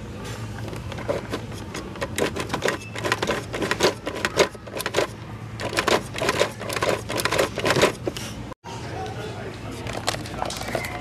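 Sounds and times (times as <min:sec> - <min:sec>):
plastic toy wheel clicking: 0:01.0 - 0:08.0.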